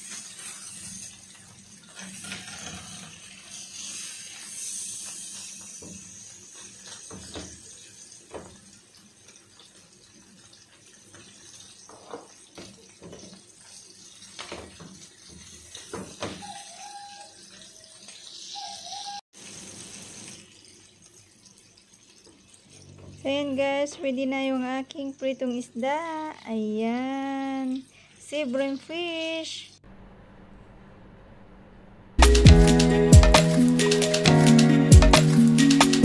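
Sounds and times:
fish sizzling in oil: 0.0 - 25.9.

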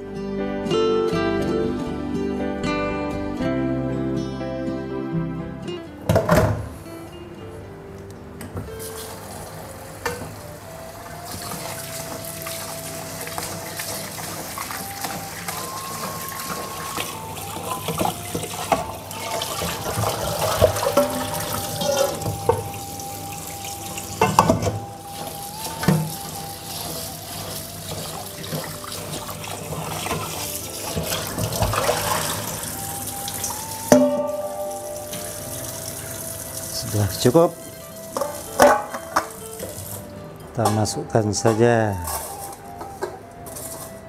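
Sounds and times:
tap water running into sink: 10.0 - 40.0
metal bowl clanking on sink: 15.5 - 22.8.

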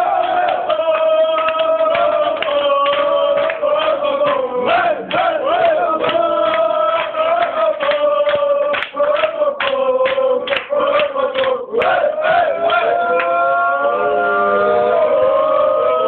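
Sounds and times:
group chanting: 0.0 - 16.0
hand claps: 0.1 - 13.3.

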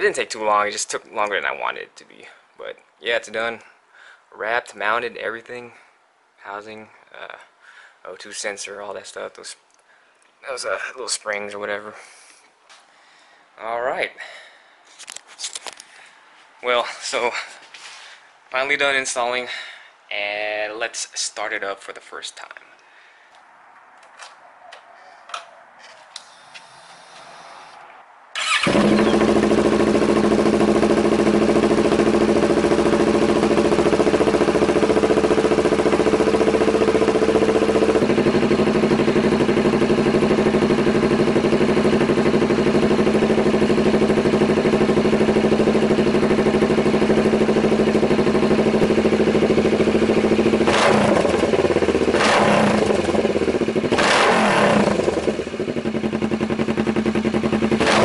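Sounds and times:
motorcycle engine idling: 28.4 - 58.0.

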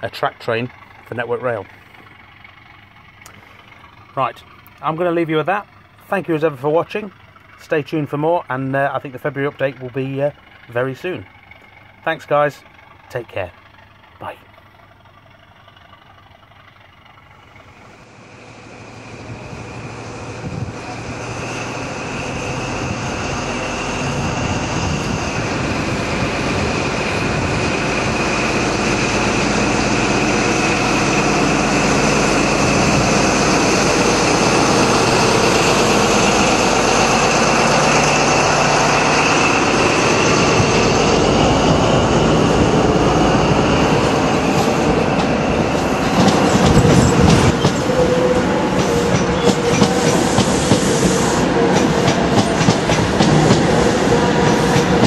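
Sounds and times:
diesel train engine running: 0.0 - 55.0
high whine: 17.4 - 55.0.

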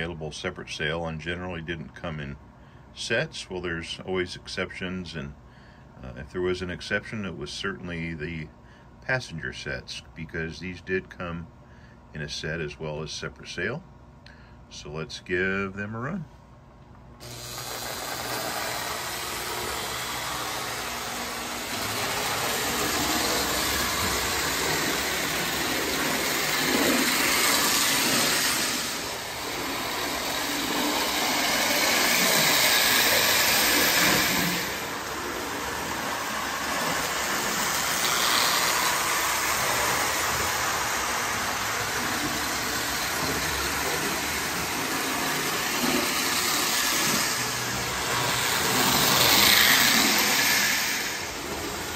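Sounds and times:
toy train motor whirring: 17.2 - 51.9
wheels rumbling along rails: 18.4 - 51.9.

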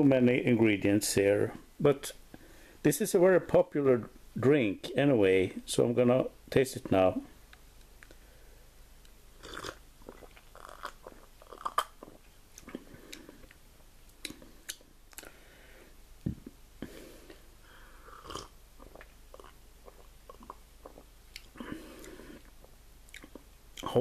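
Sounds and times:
mouth clicks and lip smacks: 9.5 - 15.3, 18.8 - 24.0.

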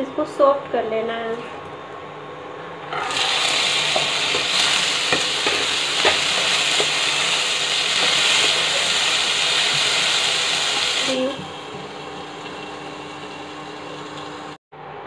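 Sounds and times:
wooden spatula scraping pan: 2.9 - 7.0
vegetables sizzling in hot oil: 3.0 - 14.6.

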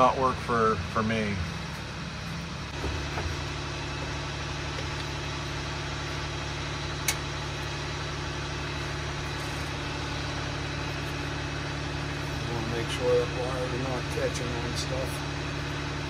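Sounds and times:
engine idling: 0.0 - 16.0
sharp click: 7.0 - 7.3.

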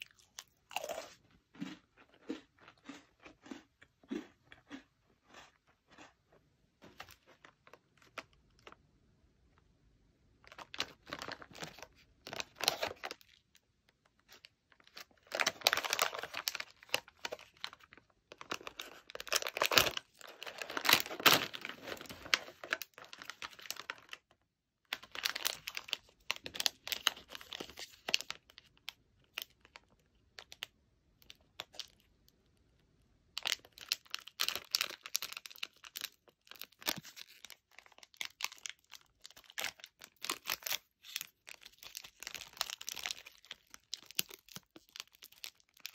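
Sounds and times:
plastic wrappers crinkling: 10.5 - 13.5, 14.2 - 24.2, 24.9 - 29.8, 33.4 - 45.9
snack bag tearing: 14.9 - 24.2.

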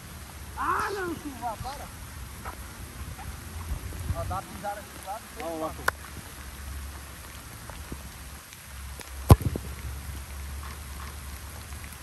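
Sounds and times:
heavy rain: 0.0 - 12.0
sharp thump: 9.3 - 9.7.

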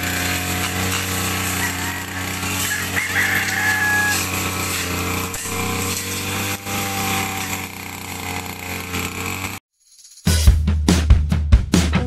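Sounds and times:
brush cutter engine running: 0.0 - 9.6
cutting head trimming grass: 0.0 - 9.6.

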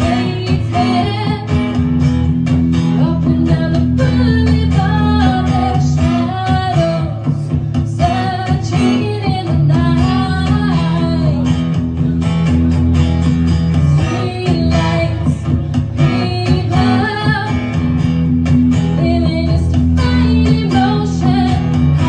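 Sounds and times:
woman singing: 0.0 - 2.1, 2.8 - 12.3, 14.0 - 22.0
strummed acoustic guitar: 0.0 - 22.0.

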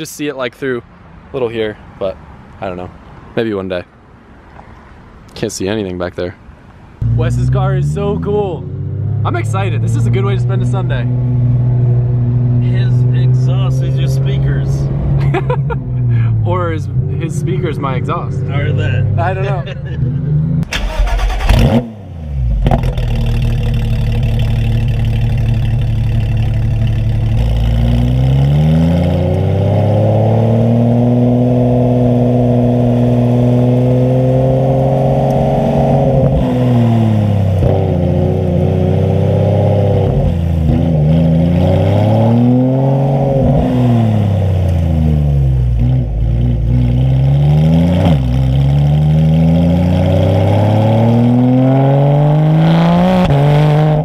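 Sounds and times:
sports car engine revving: 16.5 - 54.0.

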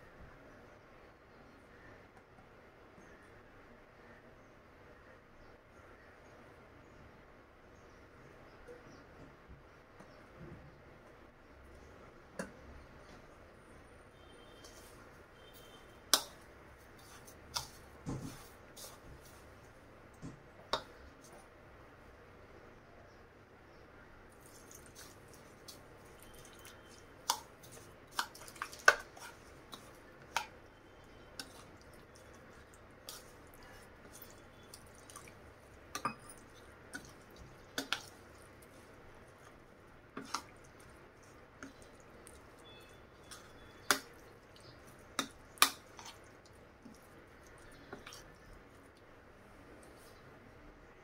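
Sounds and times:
soft squishing of mixture: 0.0 - 51.0
metal spoon clinking on bowl: 36.0 - 37.1.

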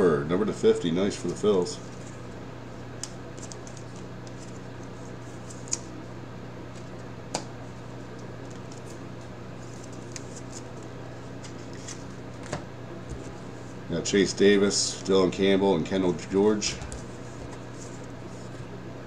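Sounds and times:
steady low hum: 0.0 - 19.0
cards sliding and ticking: 3.0 - 5.9, 8.1 - 13.7, 16.7 - 18.7.

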